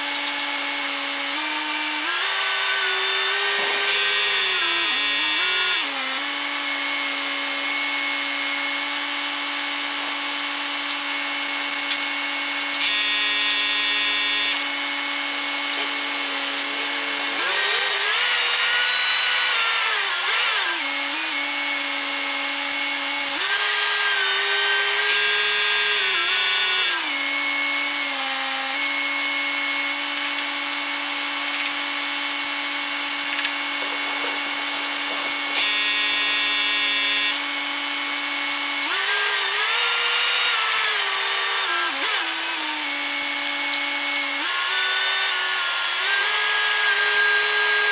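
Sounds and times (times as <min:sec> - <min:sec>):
high whine: 0:12.8 - 0:19.6
crane engine revving: 0:12.8 - 0:21.4.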